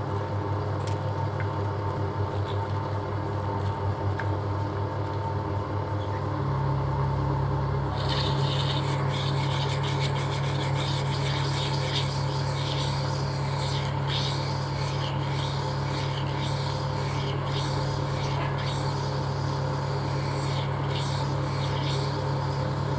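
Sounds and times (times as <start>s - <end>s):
lathe motor hum: 6.5s - 22.9s.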